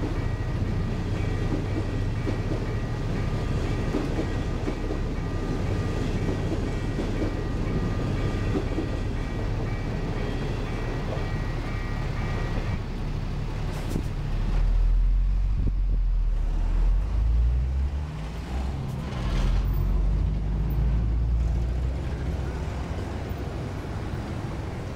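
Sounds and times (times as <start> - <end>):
level crossing warning tone: 0.0 - 13.0
truck diesel engines rumbling: 0.0 - 24.9.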